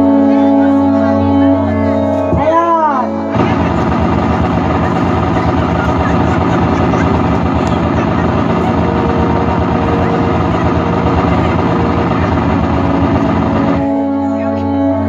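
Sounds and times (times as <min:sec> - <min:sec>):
loud rumbling sound effect: 0:03.4 - 0:13.9.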